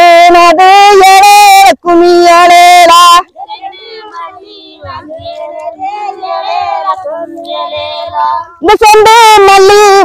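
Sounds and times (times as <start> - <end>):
loud voice holding notes: 8.6 - 10.0.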